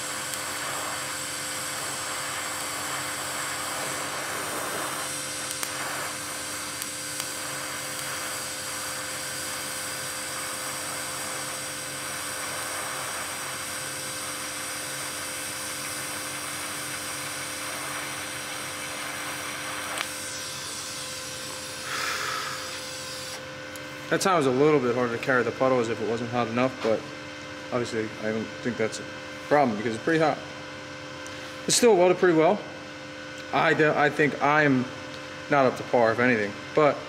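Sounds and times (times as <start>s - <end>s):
welding arc hissing: 0.0s - 25.5s
faint steady hum: 0.0s - 30.4s.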